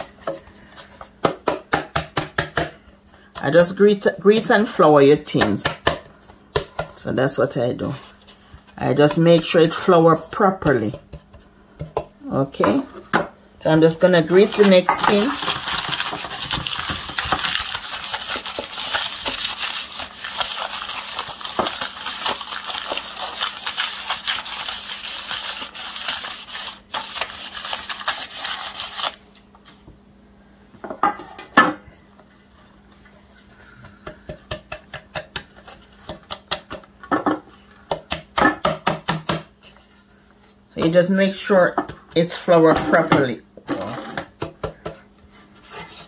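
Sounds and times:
paper scrubbing inside metal tin: 0:14.3 - 0:29.2.

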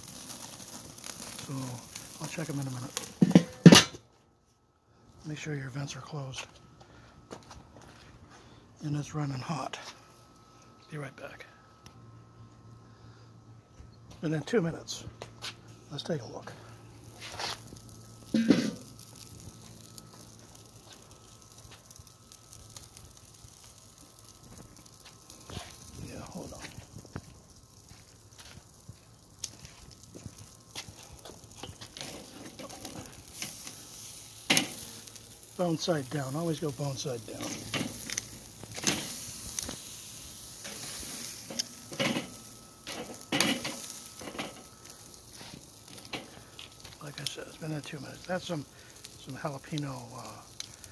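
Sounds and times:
meat sizzling on grill: 0:00.0 - 0:04.0, 0:14.3 - 0:50.9
fire crackling: 0:00.0 - 0:50.9.

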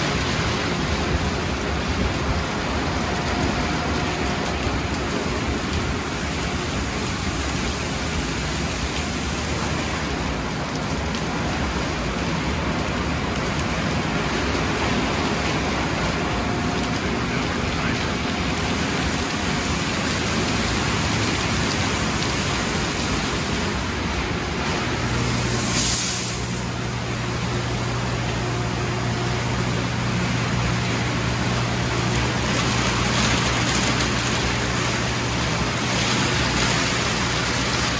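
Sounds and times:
steady low hum: 0:11.6 - 0:37.9
water spray hissing: 0:25.0 - 0:26.8
car wash brushes slapping car: 0:29.7 - 0:37.9.

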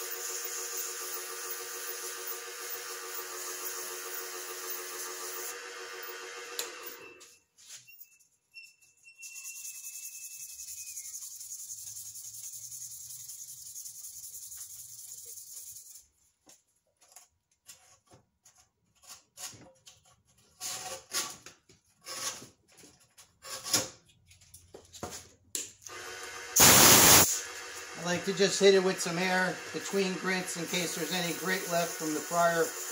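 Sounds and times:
sandpaper on spinning wood: 0:00.0 - 0:05.5, 0:09.3 - 0:16.1, 0:28.0 - 0:32.9
hand sanding scratchy strokes: 0:09.4 - 0:16.3, 0:28.0 - 0:32.9.

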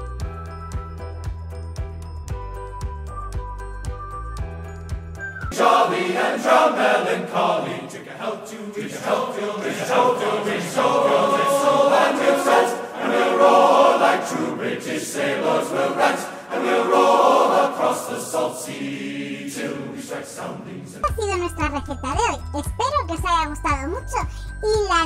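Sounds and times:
background music: 0:00.0 - 0:25.0
choir singing: 0:05.5 - 0:21.3.

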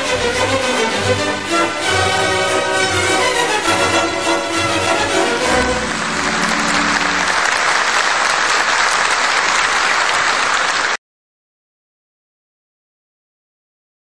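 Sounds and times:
orchestral music: 0:00.0 - 0:10.5
crowd applauding: 0:02.8 - 0:11.0.

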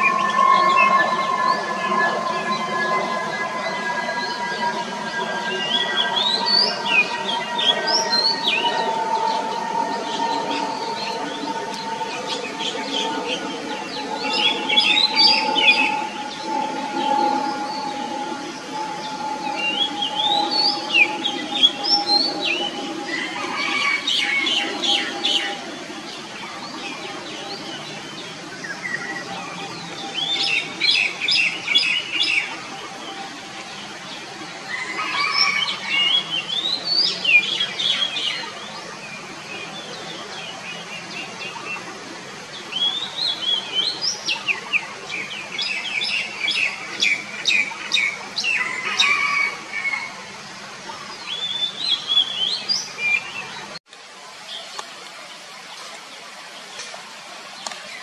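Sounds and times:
bird singing whistles: 0:00.0 - 0:25.6.

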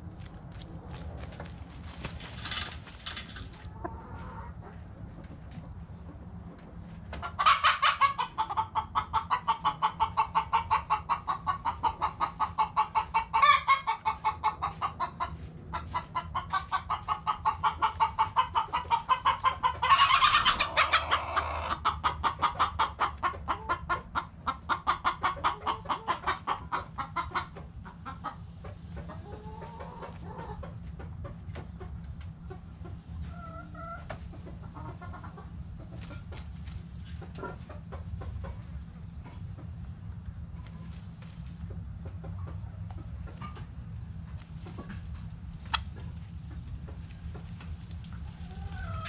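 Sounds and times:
chicken clucking: 0:02.3 - 0:49.0
loud chicken calls: 0:07.2 - 0:15.0, 0:16.0 - 0:23.8, 0:48.2 - 0:49.0.

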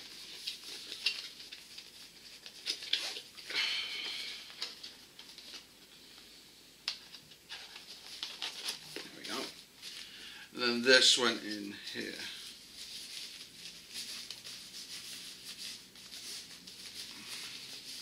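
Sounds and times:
squeaky packaging crinkle: 0:00.0 - 0:03.5, 0:07.4 - 0:10.2, 0:11.2 - 0:18.0
packaging rustling: 0:00.0 - 0:05.7, 0:07.1 - 0:10.2, 0:11.3 - 0:18.0.

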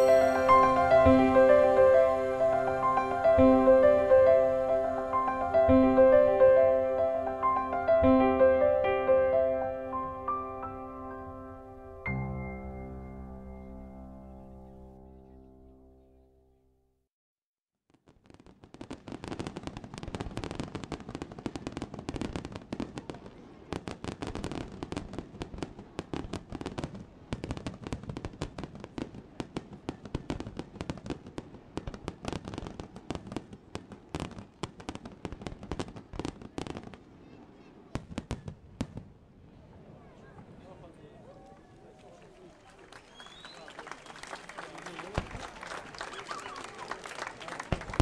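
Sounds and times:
fireworks bangs and crackles: 0:17.9 - 0:41.0, 0:45.0 - 0:46.8, 0:47.6 - 0:48.0.

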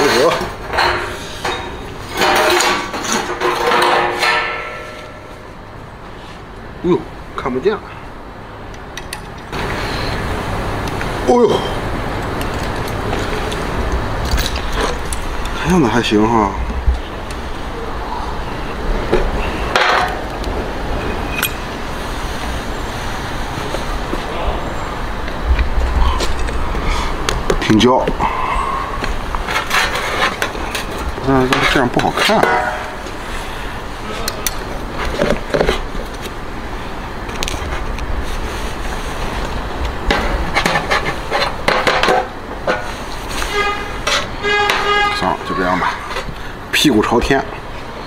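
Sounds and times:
metal knocking and clinking: 0:00.2 - 0:05.5, 0:21.3 - 0:21.6, 0:31.5 - 0:33.2
steady low rumble: 0:09.4 - 0:31.5.

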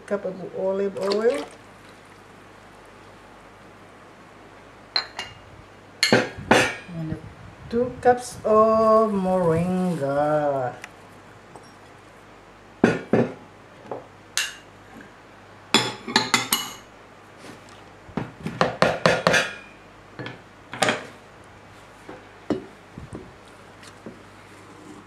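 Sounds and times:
bowls and pot clinking: 0:04.9 - 0:05.4, 0:06.0 - 0:06.9, 0:19.1 - 0:21.1.

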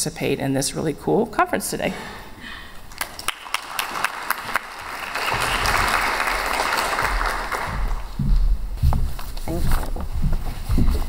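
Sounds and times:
audience applauding: 0:02.9 - 0:08.2.

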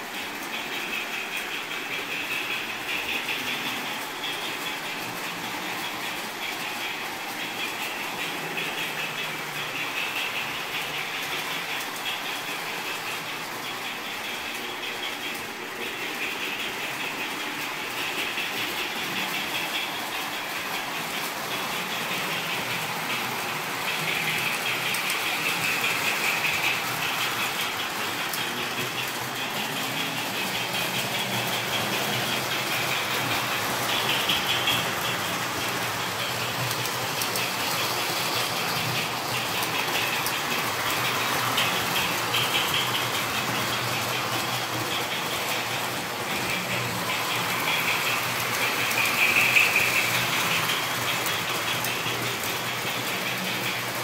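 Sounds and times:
model train wheels rattling on track: 0:00.0 - 0:54.0.

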